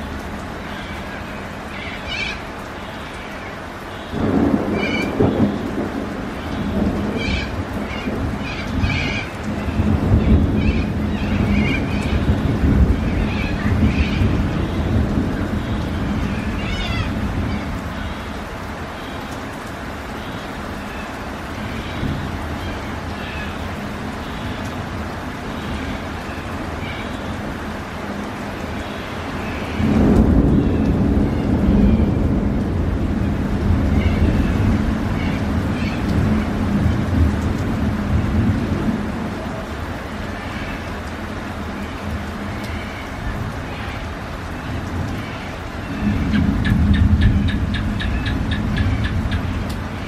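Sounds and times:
steady rain: 0.0 - 50.0
thunder rolling: 4.2 - 17.9, 29.7 - 39.3.

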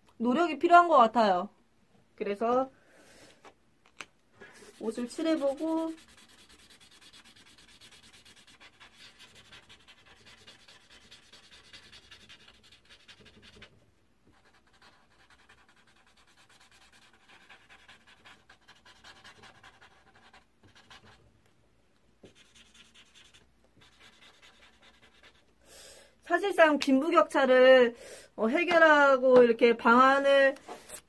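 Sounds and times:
marker scratching on paper: 4.4 - 21.2, 22.2 - 25.5, 29.9 - 31.0.

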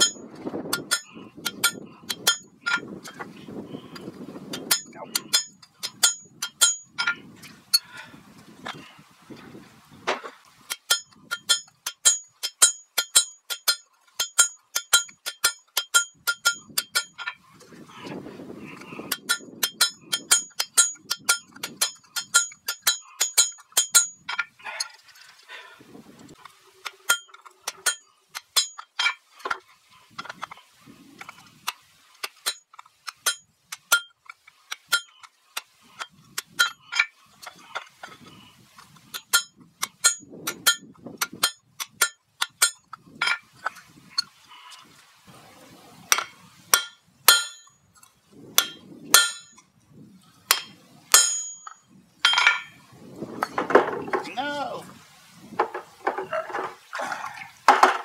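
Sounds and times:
hammer striking steel on anvil: 0.8 - 2.8, 4.6 - 7.2, 10.7 - 17.4, 19.2 - 24.2, 39.2 - 40.8, 46.1 - 47.7, 48.6 - 49.6, 50.5 - 52.7.

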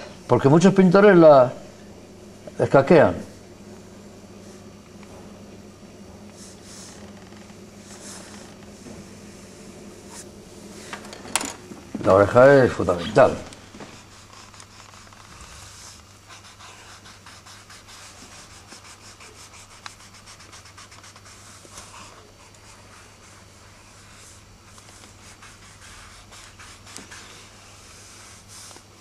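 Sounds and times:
steady low hum: 0.0 - 29.0
pencil scratching on paper: 13.2 - 28.8.

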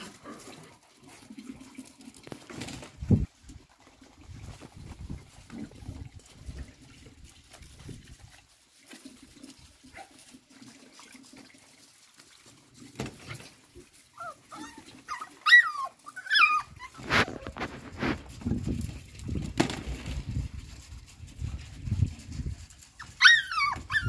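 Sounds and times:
puppy whining: 14.1 - 17.6, 22.9 - 24.0.

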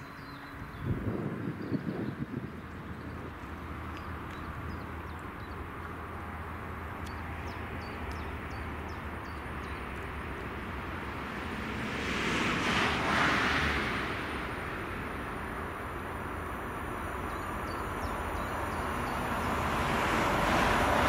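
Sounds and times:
electric train rumbling: 2.4 - 21.0
rush of train noise: 8.7 - 21.0.

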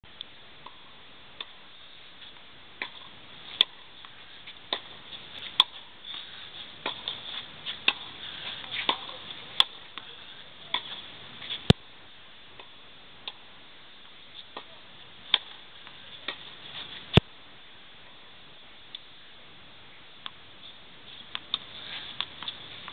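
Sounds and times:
steady hiss: 0.1 - 22.9
tennis ball hit by racket: 4.7 - 5.8, 6.8 - 9.8, 15.3 - 15.6.

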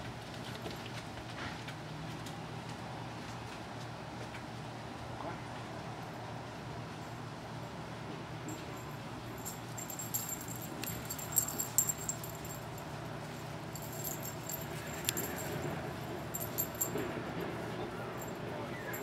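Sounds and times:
light metallic jingling: 8.5 - 19.0
sharp metallic clinks: 8.5 - 19.0.

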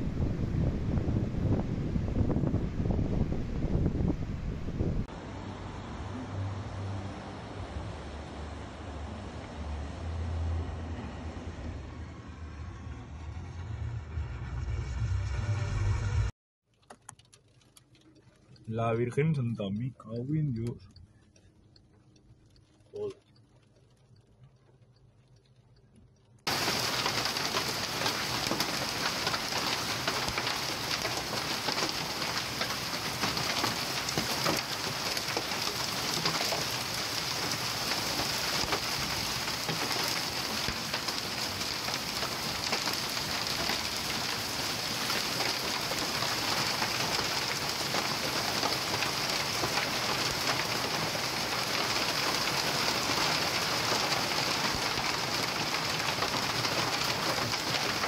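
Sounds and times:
heavy rain and hail on roof tiles: 26.2 - 58.0.

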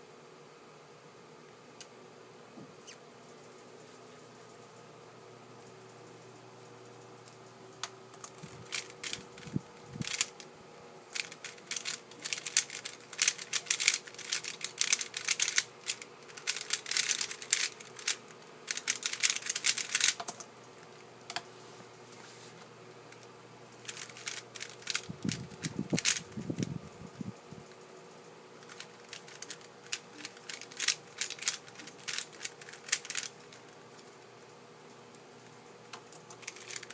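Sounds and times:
plastic puzzle cube turning clatter: 8.2 - 10.3, 11.2 - 20.3, 23.8 - 26.7, 28.6 - 33.7, 36.2 - 36.9.

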